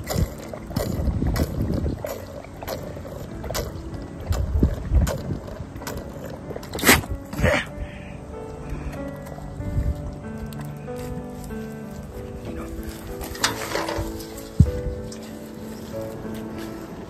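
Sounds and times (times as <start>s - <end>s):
goat slurping water: 0.0s - 7.8s, 8.6s - 17.0s
water splashing in metal bucket: 12.8s - 15.4s.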